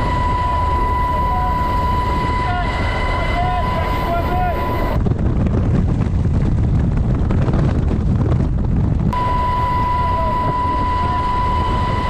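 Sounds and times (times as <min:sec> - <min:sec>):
high whine: 0:00.0 - 0:05.0, 0:09.1 - 0:12.0
helicopter engine and rotor rumble: 0:00.0 - 0:05.6, 0:09.1 - 0:12.0
wind buffeting microphone: 0:00.0 - 0:12.0.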